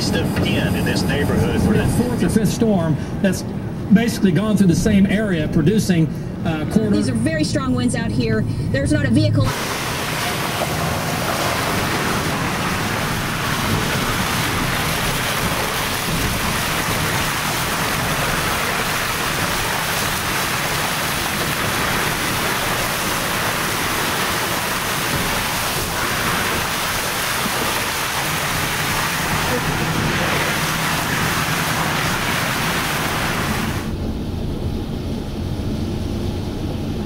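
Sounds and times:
strong wind rushing: 8.4s - 19.8s, 28.4s - 37.0s
tyres hissing on wet pavement: 9.5s - 33.9s.

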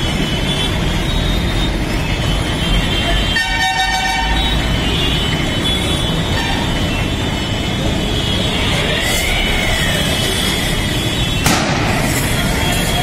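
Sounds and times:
car horn: 0.0s - 6.7s
traffic and street noise: 0.0s - 13.0s.

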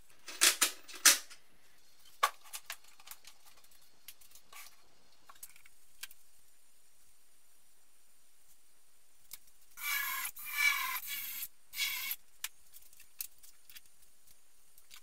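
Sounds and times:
drill boring into wood: 9.8s - 12.2s.

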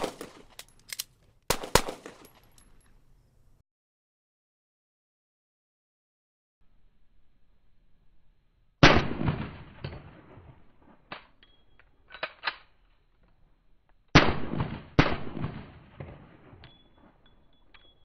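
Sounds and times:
pistol shots with echo: 0.0s - 0.5s, 1.5s - 2.3s, 14.2s - 16.6s.

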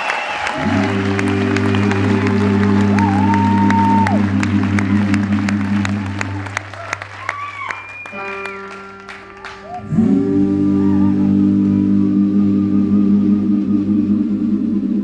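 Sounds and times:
people clapping: 0.0s - 10.0s
live band playing: 7.8s - 9.8s.

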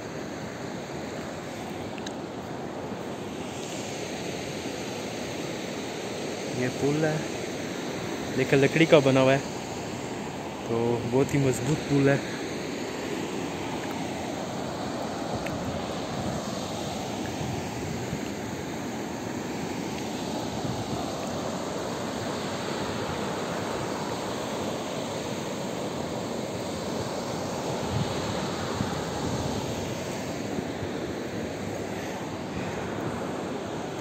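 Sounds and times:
river rushing over stones: 0.0s - 34.0s.

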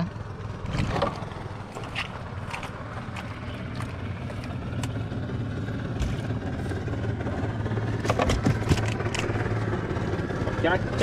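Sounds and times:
small engine idling: 0.0s - 11.0s
fish trap knocks and splashes: 8.0s - 9.3s.

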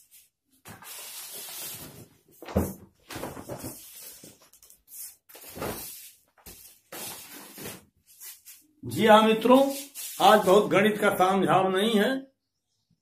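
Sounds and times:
plastic banner rustling and crackling: 0.0s - 8.7s.

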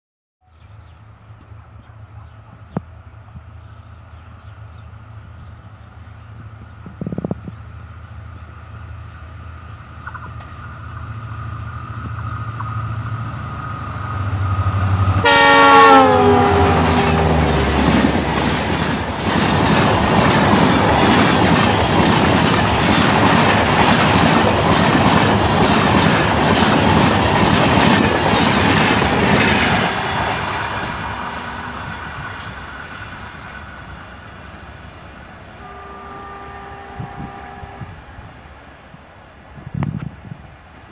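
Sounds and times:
locomotive engine drone: 0.6s - 27.6s
multi-tone train horn: 14.3s - 17.8s, 29.8s - 32.0s, 35.6s - 38.2s
wheels clacking over rail joints: 16.9s - 31.2s.

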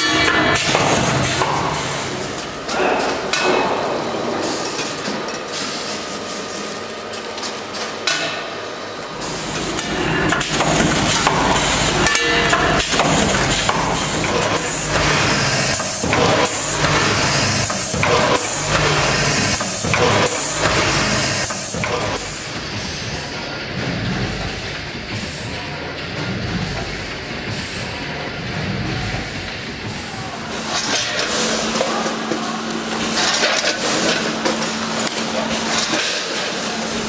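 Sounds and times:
packaging machinery clattering: 0.0s - 8.4s, 9.1s - 37.0s
sharp mechanical knocks: 9.6s - 22.9s.

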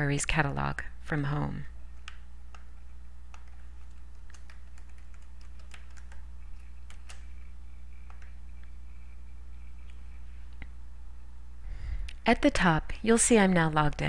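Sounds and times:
low electrical hum: 0.0s - 14.0s
computer keyboard keys clicking: 3.3s - 7.4s, 8.0s - 8.4s.

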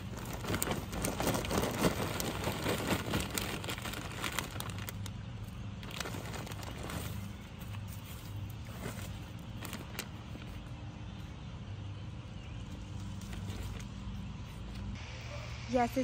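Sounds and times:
plastic bag crinkling: 0.0s - 10.6s
soil rustling: 0.0s - 15.0s.

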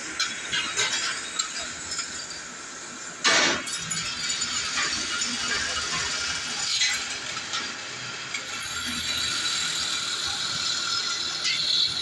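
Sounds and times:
drill press whining in metal: 3.6s - 12.0s.

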